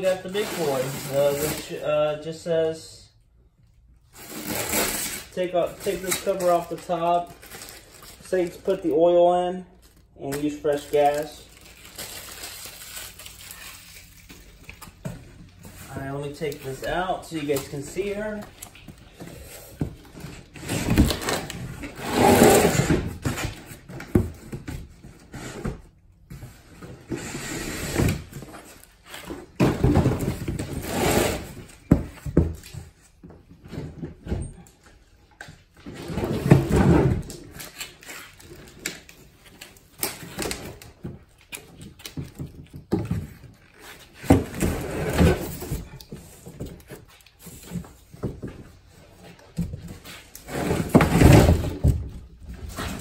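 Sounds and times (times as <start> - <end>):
cardboard rustling and scraping: 40.2 - 53.0.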